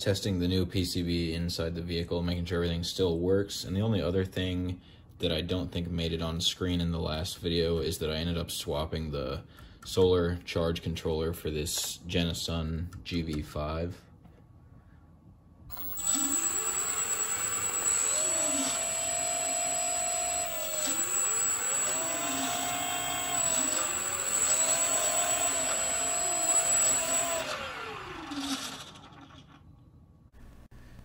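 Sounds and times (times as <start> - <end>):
electric motors whining: 15.7 - 29.4.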